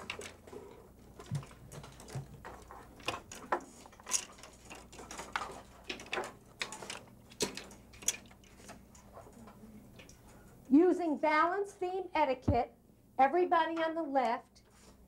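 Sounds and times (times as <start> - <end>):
plastic weights clicking: 0.0 - 9.1.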